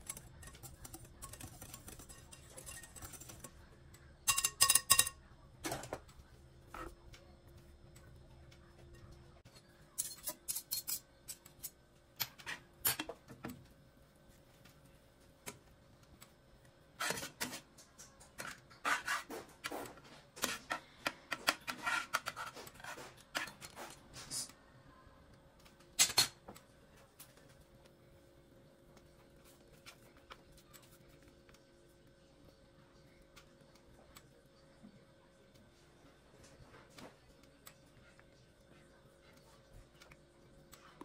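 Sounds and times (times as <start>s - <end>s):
metal turner scraping frying pan: 0.0s - 3.5s, 18.4s - 20.8s, 21.5s - 24.5s.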